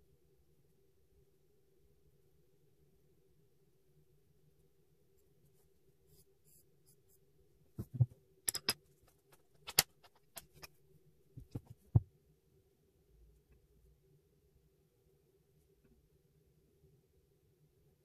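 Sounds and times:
pencil knock on wooden desk: 0:07.8 - 0:08.1, 0:11.4 - 0:12.1.

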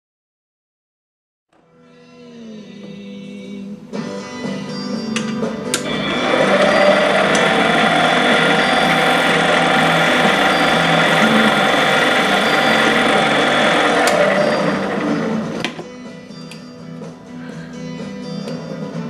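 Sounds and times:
metal lathe whining: 0:05.8 - 0:15.6.

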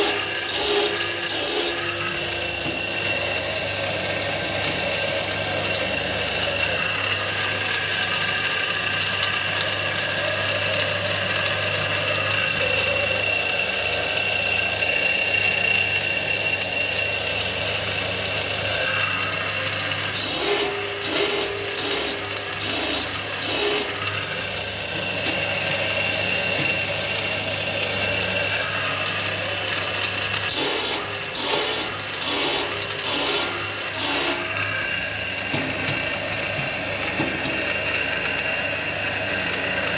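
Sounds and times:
harsh grinding strokes on steel: 0:00.0 - 0:02.3, 0:18.8 - 0:25.1, 0:30.2 - 0:35.4
grinder motor humming and whining: 0:00.0 - 0:39.9.

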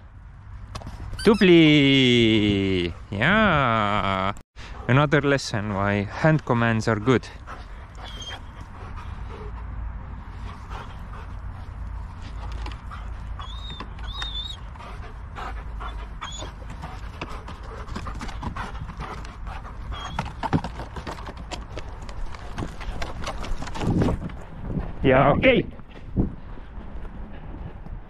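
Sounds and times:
dog panting: 0:06.9 - 0:23.9.

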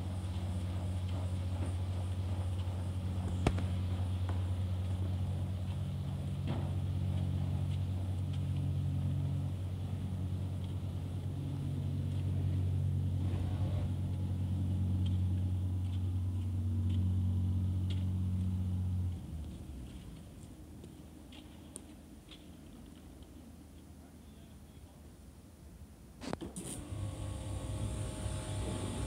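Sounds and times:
roller door motor hum: 0:00.1 - 0:19.2, 0:26.5 - 0:29.0.

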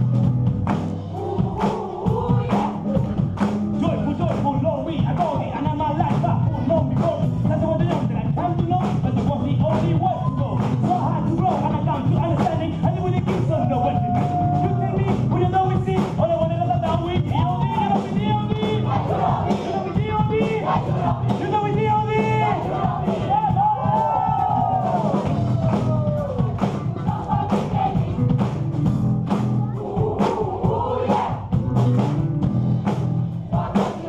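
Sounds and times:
drums and beat: 0:00.0 - 0:34.0
hand clapping: 0:00.6 - 0:00.9, 0:02.5 - 0:04.6
choir singing: 0:01.1 - 0:03.2, 0:18.6 - 0:21.5, 0:22.2 - 0:23.7, 0:26.8 - 0:28.3, 0:29.7 - 0:31.6, 0:33.4 - 0:34.0.

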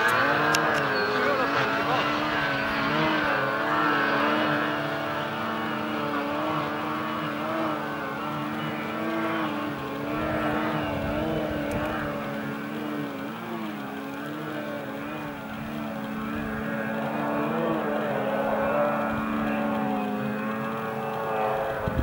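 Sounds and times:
snowmobile engine running hard: 0:00.0 - 0:22.0.

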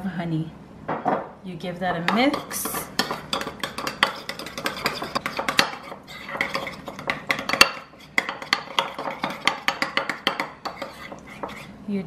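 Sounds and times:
metal spoon clinking in ceramic bowl: 0:02.3 - 0:11.0.

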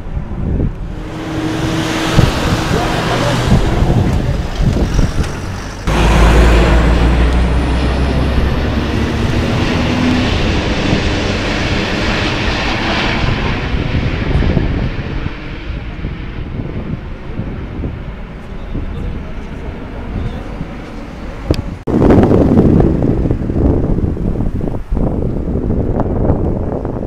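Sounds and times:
jet airliner rumble overhead: 0:00.0 - 0:27.0.

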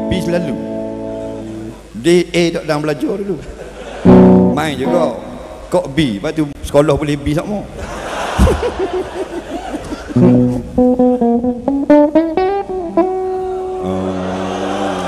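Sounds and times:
electric guitar through amplifier: 0:04.1 - 0:05.7, 0:10.2 - 0:15.0.

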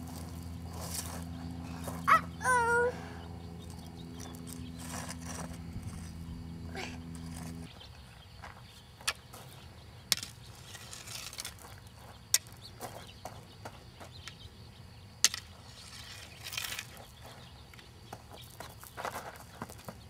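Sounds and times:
stick scraping gravel: 0:00.0 - 0:02.2, 0:03.6 - 0:07.7, 0:09.0 - 0:13.3, 0:15.2 - 0:17.6
footsteps crunching on gravel: 0:00.0 - 0:02.8, 0:03.6 - 0:09.6, 0:10.4 - 0:14.2, 0:16.4 - 0:20.0.

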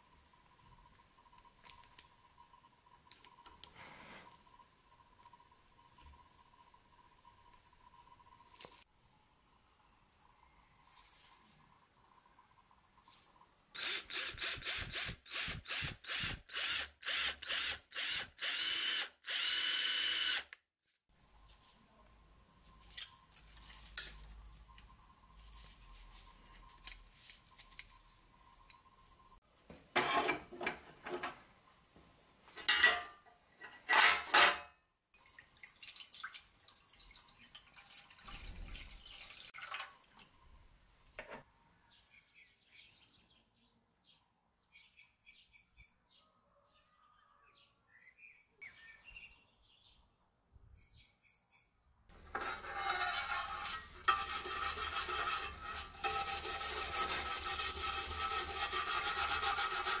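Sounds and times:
stiff brush scrubbing metal: 0:52.2 - 1:00.0.

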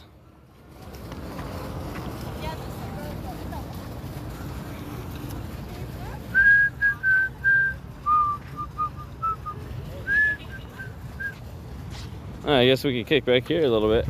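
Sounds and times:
person whistling a tune: 0:06.3 - 0:11.4.

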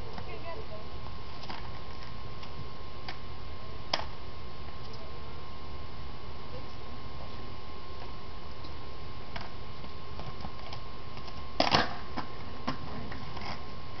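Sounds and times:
skateboard clacking on concrete: 0:10.2 - 0:13.6.

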